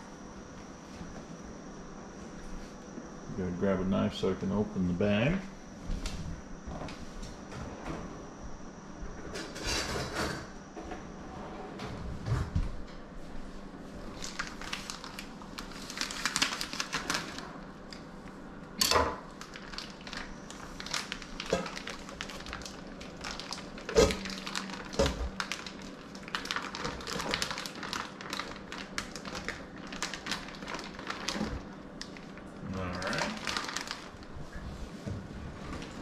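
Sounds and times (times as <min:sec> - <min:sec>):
plastic bag crinkling: 0:14.1 - 0:18.1, 0:19.3 - 0:34.6.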